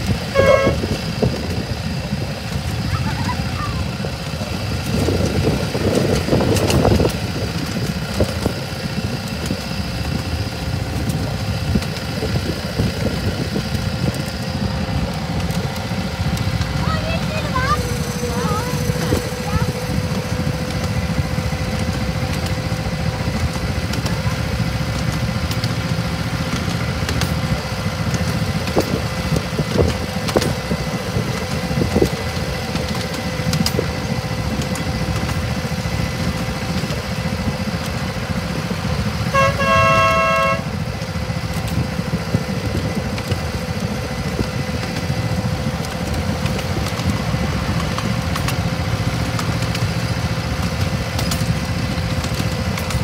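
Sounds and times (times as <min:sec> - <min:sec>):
clicks along the track: 0:00.0 - 0:53.0
locomotive engine droning: 0:00.0 - 0:53.0
locomotive horn blast: 0:00.1 - 0:01.2, 0:39.2 - 0:41.0.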